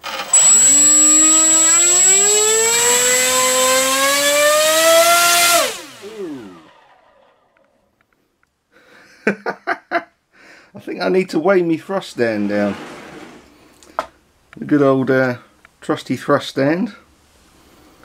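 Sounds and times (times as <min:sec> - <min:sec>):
thin high whine: 0:00.0 - 0:06.7
electric motor propeller whining: 0:00.0 - 0:07.5.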